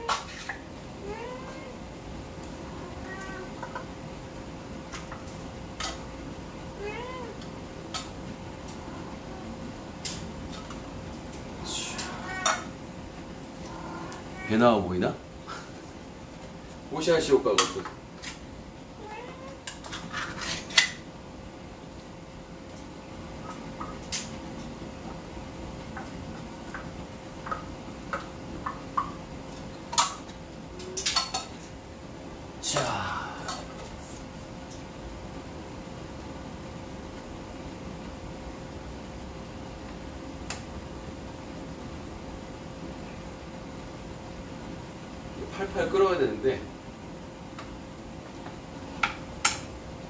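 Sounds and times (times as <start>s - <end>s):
faint hum: 0.0s - 50.0s
cat meowing: 1.0s - 1.8s, 2.7s - 3.7s, 6.8s - 7.5s, 11.6s - 12.7s, 13.7s - 14.6s, 19.0s - 19.7s.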